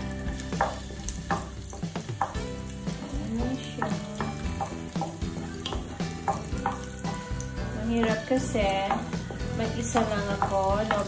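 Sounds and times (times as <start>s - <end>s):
garlic sizzling in oil: 0.0s - 11.0s.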